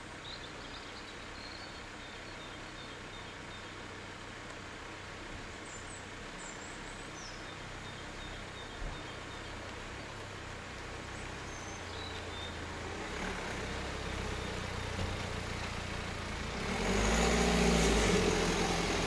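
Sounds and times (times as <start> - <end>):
car engine passing: 11.1 - 19.0.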